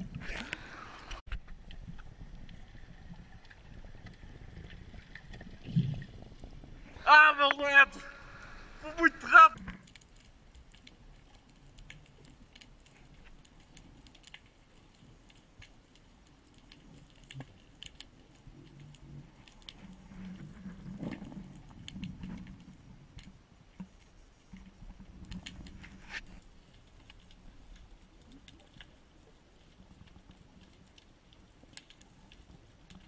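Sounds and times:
underwater crackling clicks: 9.6s - 33.0s.

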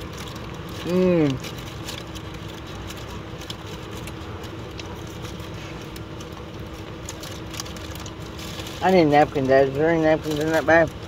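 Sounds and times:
person chewing food: 0.0s - 8.8s
foil wrapper crinkling: 0.0s - 11.0s.

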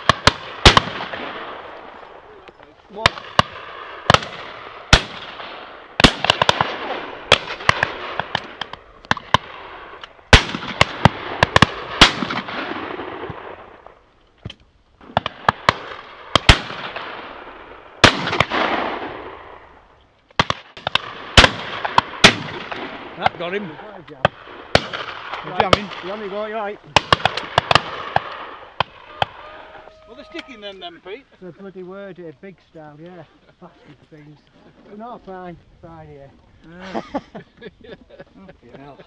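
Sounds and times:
shotgun shots echoing: 0.0s - 13.9s, 15.0s - 19.7s, 20.4s - 29.4s.

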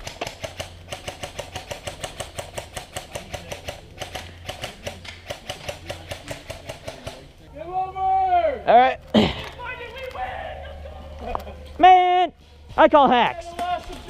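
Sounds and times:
airsoft guns firing full auto: 0.0s - 7.3s.

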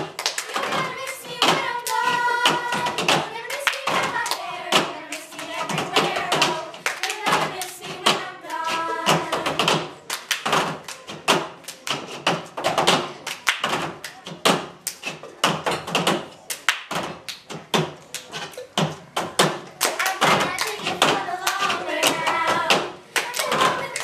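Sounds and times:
hand claps: 0.0s - 18.4s, 19.4s - 24.0s.

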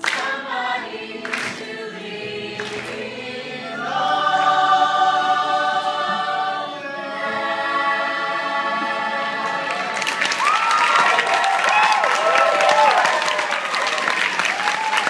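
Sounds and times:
a cappella group singing chords: 0.0s - 10.4s.

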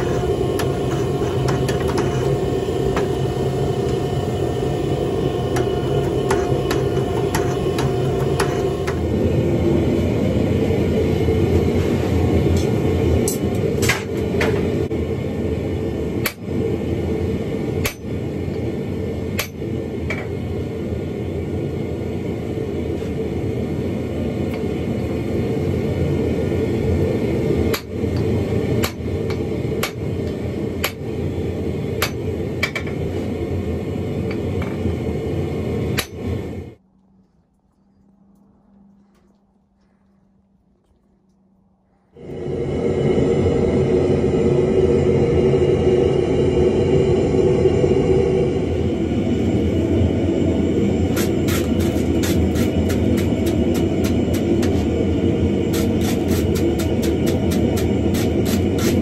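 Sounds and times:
forge running: 0.0s - 59.0s
hammer striking hot iron on anvil: 5.4s - 9.0s, 16.2s - 16.4s, 17.8s - 18.1s, 19.4s - 20.2s, 27.7s - 30.0s, 30.8s - 31.0s, 32.0s - 32.9s, 36.0s - 36.2s.

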